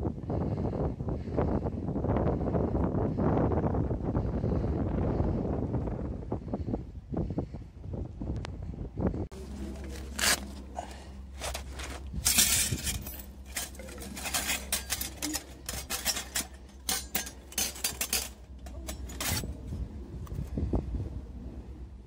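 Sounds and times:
metal plates clinking and scraping: 0:09.6 - 0:19.7
metallic clicks and clinks: 0:12.2 - 0:19.6.

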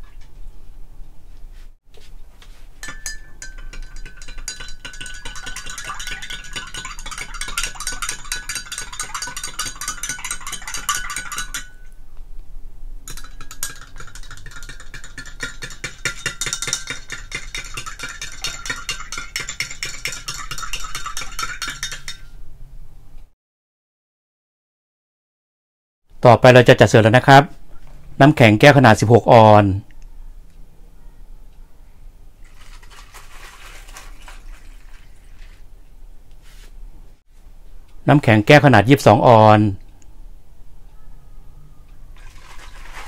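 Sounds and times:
spoon clinking in glass mug: 0:02.8 - 0:12.0, 0:13.1 - 0:22.3.

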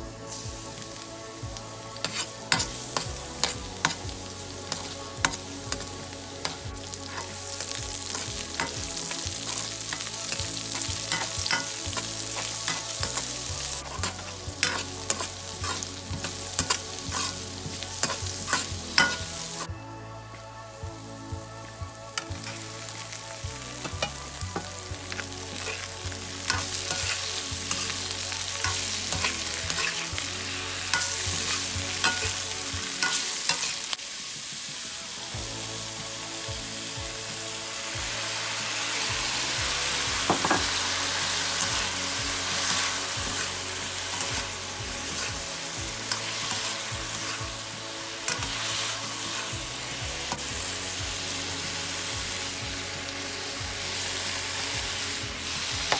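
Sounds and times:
food sizzling in a wok: 0:00.0 - 0:19.7, 0:20.3 - 0:55.9
metal spatula scraping pan: 0:02.0 - 0:17.4, 0:18.0 - 0:19.4, 0:23.9 - 0:33.8, 0:40.2 - 0:47.6.

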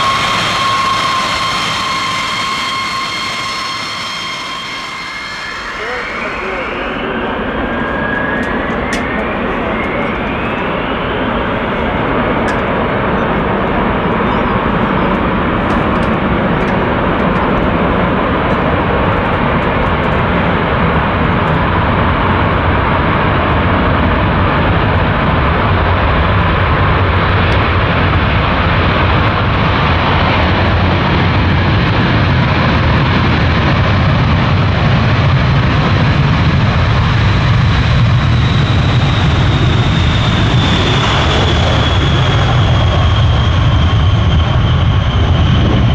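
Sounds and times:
thin high jet whine: 0:00.0 - 0:33.4, 0:36.6 - 0:45.9
jet engines roaring: 0:00.0 - 0:45.9.

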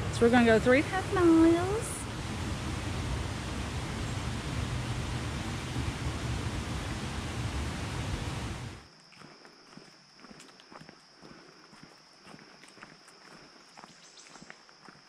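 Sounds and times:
river water rushing: 0:00.0 - 0:08.8
footsteps on dirt trail: 0:08.8 - 0:15.0.

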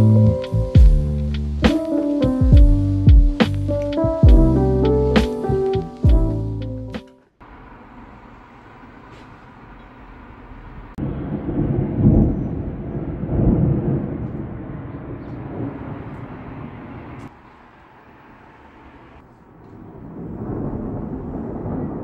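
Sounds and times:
steady background hiss: 0:00.0 - 0:04.1
thunder rumbling: 0:07.6 - 0:22.0.

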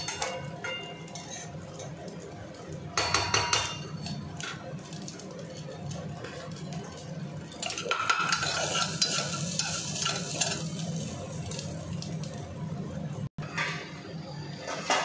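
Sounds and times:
metal spatula scraping pan: 0:01.0 - 0:01.8, 0:07.6 - 0:11.1
curry sizzling in a pan: 0:03.8 - 0:12.6.

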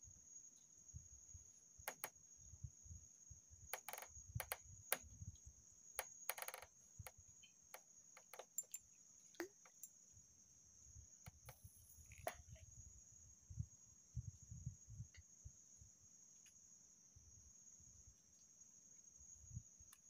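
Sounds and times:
small clicks and knocks: 0:03.8 - 0:10.0
high-pitched insect drone: 0:06.0 - 0:07.6, 0:10.9 - 0:12.9.

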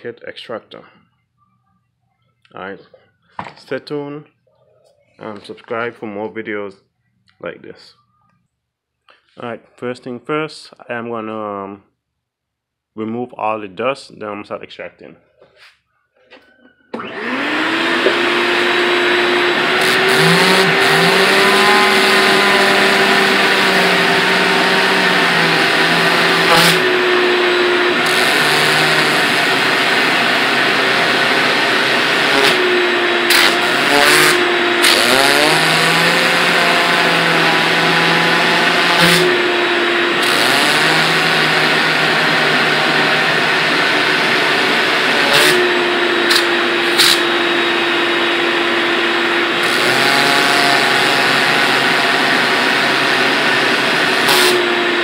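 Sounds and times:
vacuum cleaner running: 0:16.9 - 0:55.0.

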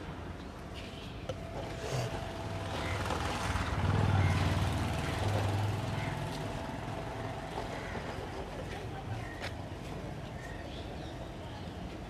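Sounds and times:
motorcycle engine passing: 0:01.7 - 0:07.5.

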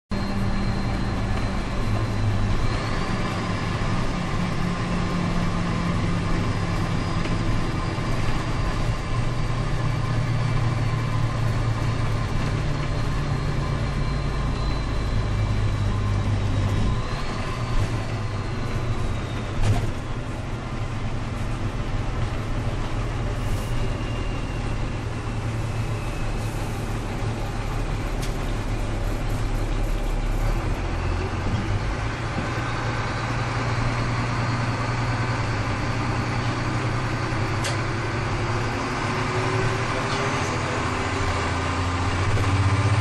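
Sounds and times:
diesel bus engine running: 0:00.1 - 0:43.0.

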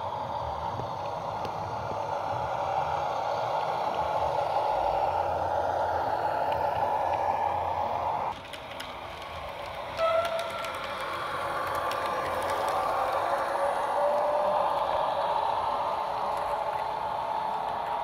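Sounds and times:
faint clicks: 0:08.3 - 0:15.6.

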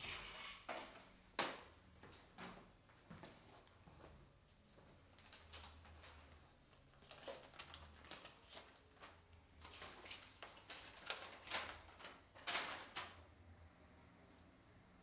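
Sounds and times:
paper crinkling and rustling: 0:05.2 - 0:13.2.

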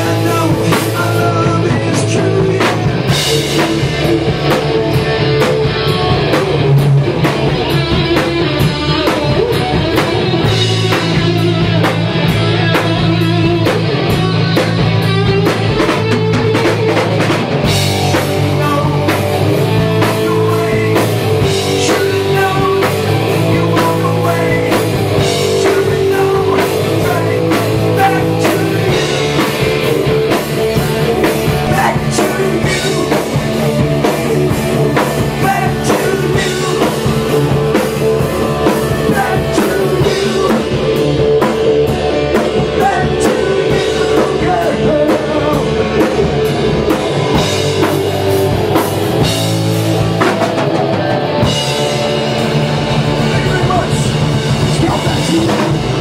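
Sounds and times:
man singing: 0:00.0 - 0:04.6, 0:18.1 - 0:30.3, 0:31.1 - 0:46.5, 0:53.2 - 0:56.0
distorted electric guitar: 0:00.0 - 0:56.0
drum kit: 0:00.0 - 0:56.0.

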